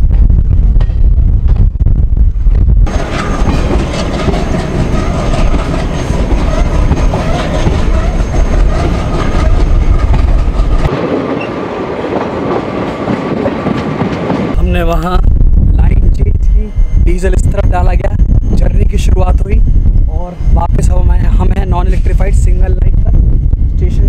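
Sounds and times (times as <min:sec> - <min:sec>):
train wheels on rails: 0:02.4 - 0:15.2.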